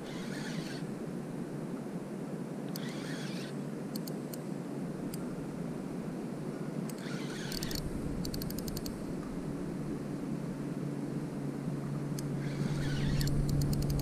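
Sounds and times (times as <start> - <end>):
fishing reel gears humming: 0.0 - 0.9, 2.7 - 4.1, 6.9 - 9.0, 12.2 - 14.0
small clicks: 2.7 - 4.4, 6.9 - 9.0, 12.2 - 14.0.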